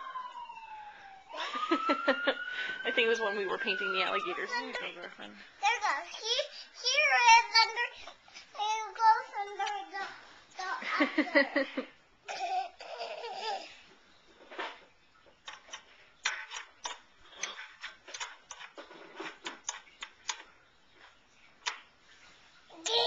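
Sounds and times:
toddler babbling: 22.7 - 23.0.

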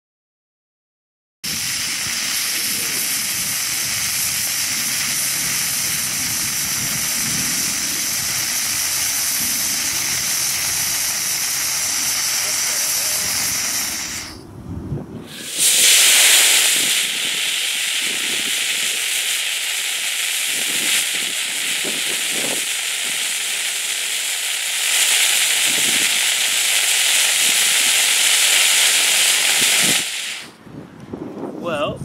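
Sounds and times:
rocket motor hissing: 1.5 - 14.5, 15.2 - 30.6.

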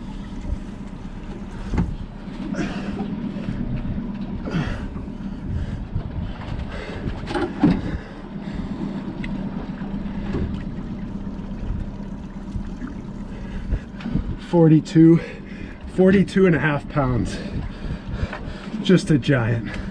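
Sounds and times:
outboard motor idling: 0.0 - 19.9.

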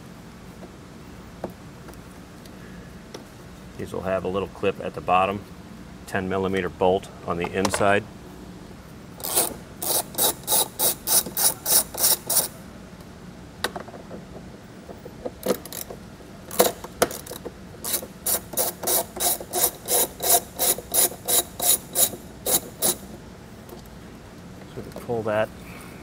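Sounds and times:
socket ratchet clicking: 9.2 - 12.6, 15.4 - 23.1.

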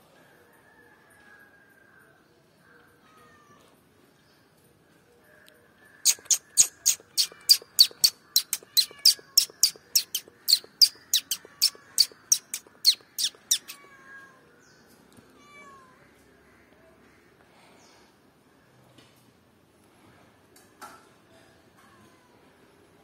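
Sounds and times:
squirrel alarm chirps: 6.0 - 13.8.

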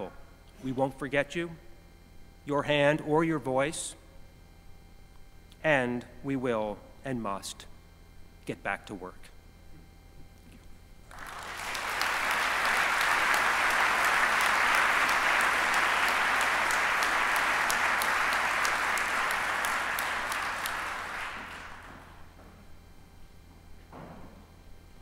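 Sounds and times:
audience applauding: 11.1 - 22.3.

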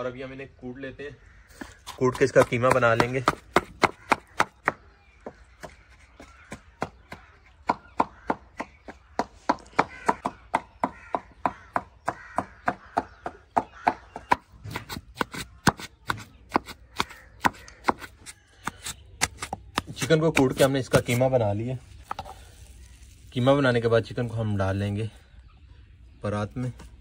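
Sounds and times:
knife chopping meat: 2.1 - 4.8, 13.7 - 21.2.

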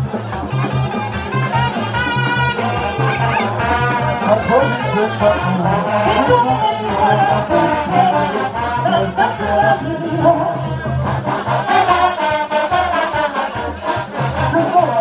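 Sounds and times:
pulsing low bass beat: 0.0 - 12.1
brass horns playing melody: 0.0 - 15.0
voices singing: 2.5 - 15.0.

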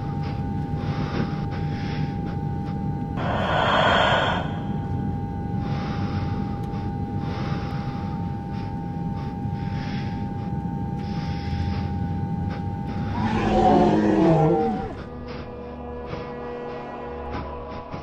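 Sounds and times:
low rumble: 3.1 - 5.7, 12.7 - 18.0
steady held tone: 3.2 - 5.6
breath-like noise swells: 3.2 - 15.4.

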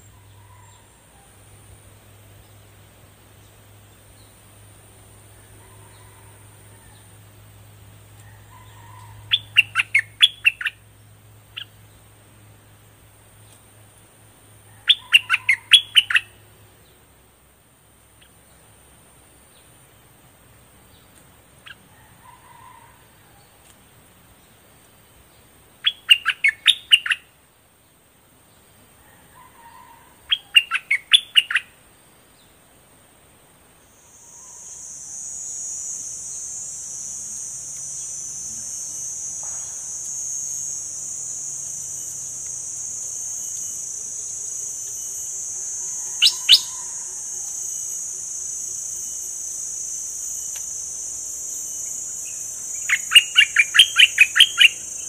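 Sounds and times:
bulbul singing: 9.3 - 10.8, 14.9 - 16.4, 25.8 - 27.3, 35.6 - 55.0.

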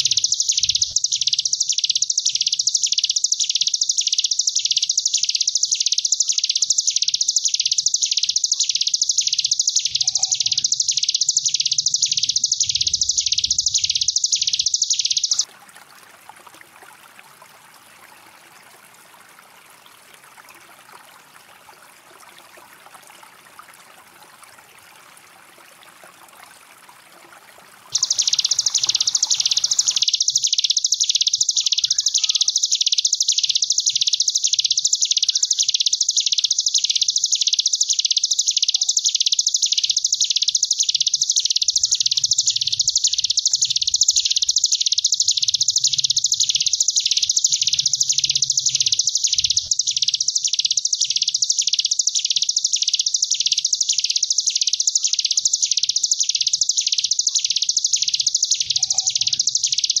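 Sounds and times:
bird singing high buzzing trill: 0.0 - 15.5, 27.9 - 60.0.

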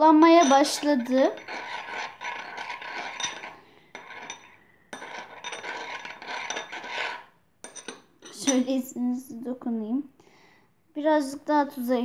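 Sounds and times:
metal spoon scraping ceramic plate: 0.2 - 8.7.

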